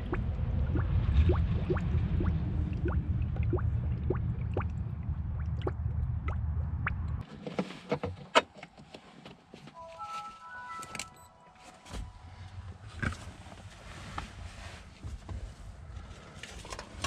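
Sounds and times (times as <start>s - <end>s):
coolant bubbling and gurgling: 0.0s - 7.2s
low steady rumble: 0.0s - 7.2s.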